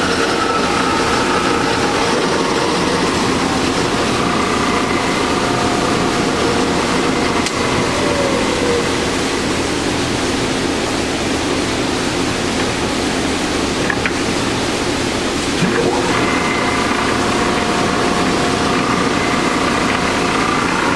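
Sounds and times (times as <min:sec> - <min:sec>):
loud rushing noise: 0:00.0 - 0:11.4
lathe whine: 0:00.0 - 0:20.9.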